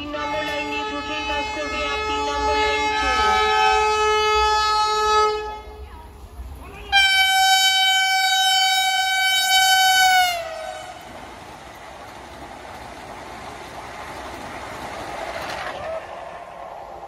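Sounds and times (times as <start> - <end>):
train horn: 0.0 - 5.8, 6.9 - 11.1
train coaches rushing past: 5.7 - 17.0.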